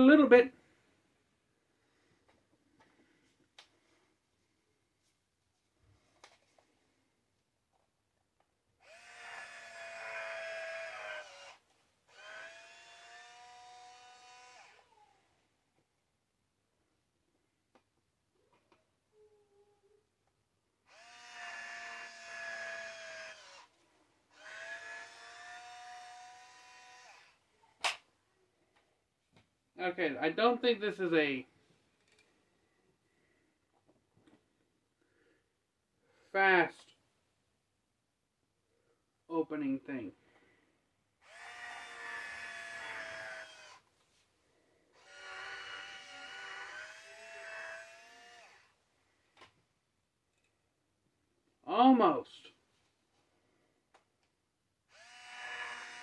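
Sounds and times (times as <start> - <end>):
electric wine opener motor whining: 8.8 - 15.0, 20.9 - 23.7, 24.4 - 27.4, 41.2 - 43.8, 45.0 - 48.7, 54.9 - 56.0.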